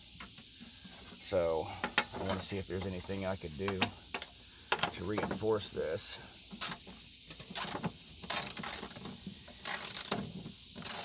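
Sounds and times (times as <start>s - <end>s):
socket ratchet clicking: 6.6s - 10.2s, 10.8s - 11.0s.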